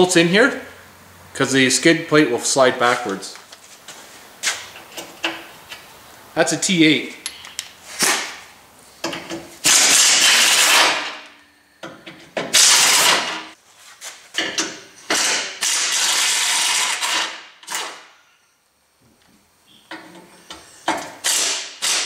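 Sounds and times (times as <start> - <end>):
pneumatic air ratchet running: 9.6 - 11.2, 12.5 - 13.4, 15.0 - 18.1, 20.4 - 22.0.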